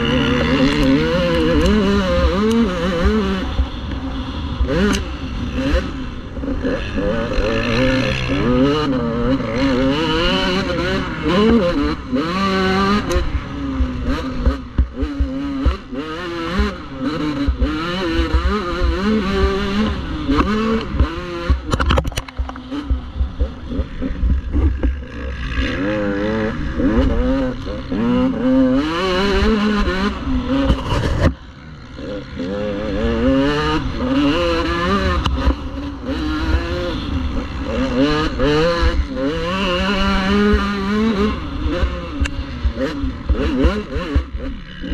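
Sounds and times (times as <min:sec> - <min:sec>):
motocross bike engine revving: 0:00.0 - 0:44.9.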